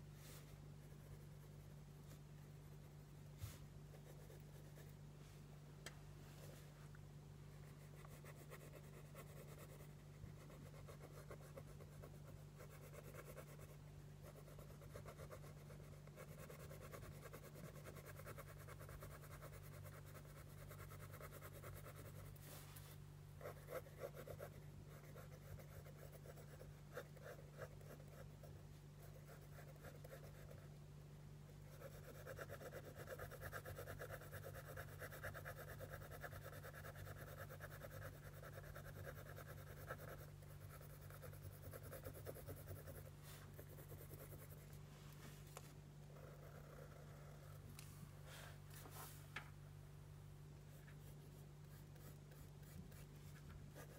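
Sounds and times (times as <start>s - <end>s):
steady low hum: 0.0s - 53.9s
pencil scratching on paper: 3.9s - 4.9s, 7.7s - 22.6s, 23.4s - 28.4s, 29.0s - 30.6s, 31.7s - 44.7s, 50.8s - 53.9s.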